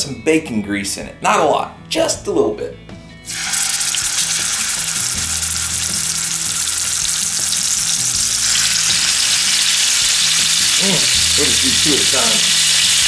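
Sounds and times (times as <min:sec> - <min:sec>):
meat sizzling in skillet: 0:03.3 - 0:13.0.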